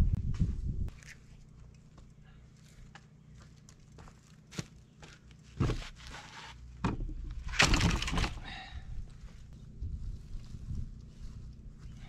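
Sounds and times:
wind buffeting microphone: 0.0s - 0.9s, 8.8s - 12.0s
low rumble: 8.2s - 12.0s.

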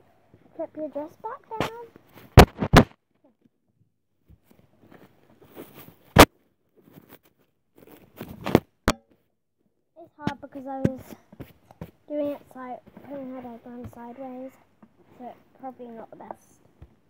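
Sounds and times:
knocks against microphone: 2.4s - 2.9s.

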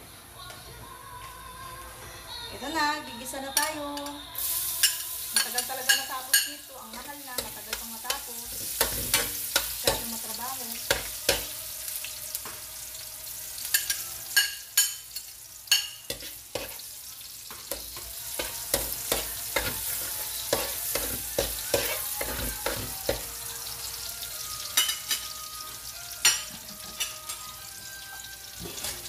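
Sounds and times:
garlic sizzling in hot oil: 4.4s - 29.0s
metal spatula scraping a pan: 4.8s - 11.5s, 15.7s - 16.9s, 17.6s - 23.3s.

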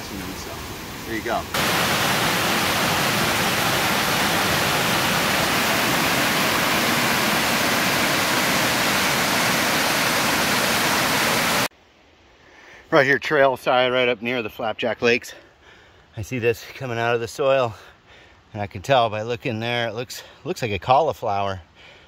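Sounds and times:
stream rushing over rocks: 0.0s - 11.7s.

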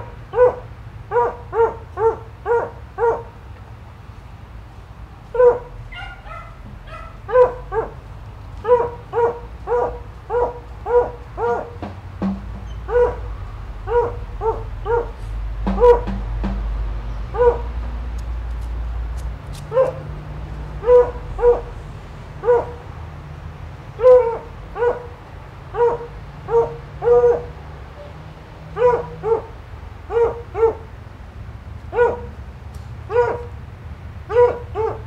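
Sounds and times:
dog barking: 0.0s - 3.4s, 5.3s - 8.0s, 8.6s - 11.8s, 12.8s - 13.3s, 13.9s - 16.1s, 17.3s - 17.7s, 19.7s - 20.1s, 20.8s - 21.7s, 22.4s - 22.8s, 24.0s - 30.9s, 31.9s - 32.4s, 33.1s - 33.6s, 34.3s - 35.0s.

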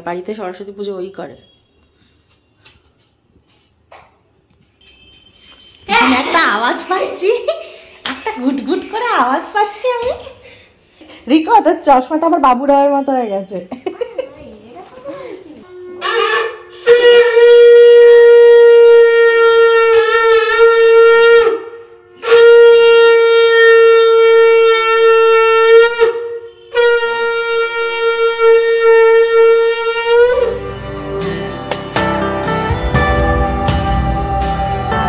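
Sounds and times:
conch shell blasts: 15.7s - 31.6s
soft guitar music: 30.5s - 35.0s.

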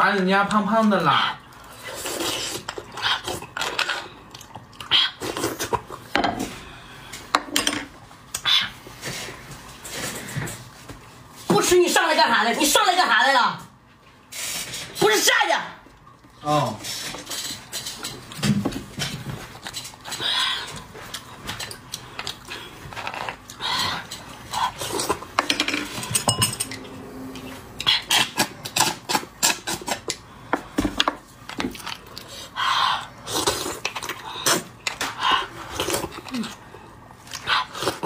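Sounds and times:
wet slurping and sucking: 1.6s - 3.6s.

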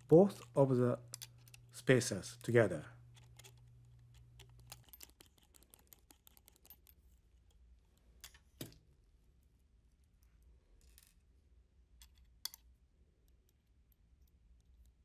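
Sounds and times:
hand tool clicking on metal screws: 3.1s - 7.0s.

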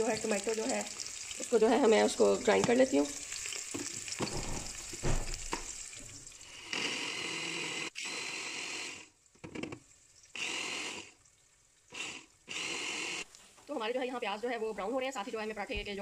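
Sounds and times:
onions sizzling in oil: 0.0s - 6.8s
electric blender grinding: 6.5s - 9.2s, 10.3s - 11.2s, 11.9s - 13.3s.

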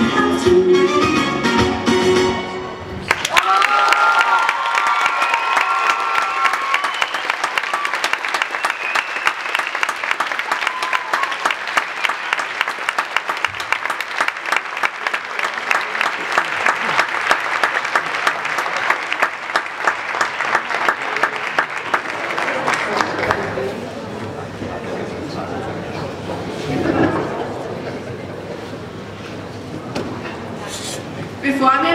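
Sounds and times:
band music: 0.0s - 3.0s
audience applauding: 3.0s - 24.2s.

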